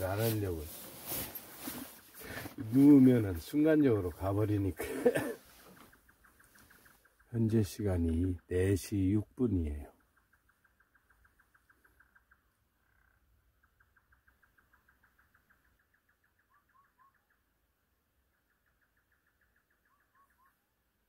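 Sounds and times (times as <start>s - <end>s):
faint pulsing animal trill: 5.6s - 20.8s.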